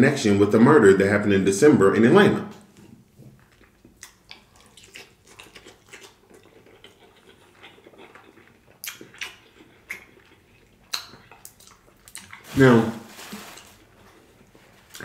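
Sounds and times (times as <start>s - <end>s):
close chewing with lip smacks: 2.7s - 12.4s.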